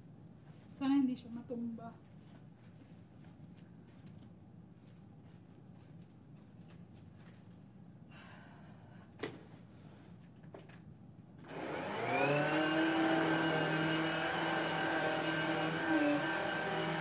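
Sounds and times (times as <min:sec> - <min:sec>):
vacuum cleaner motor whine: 0:11.4 - 0:17.0.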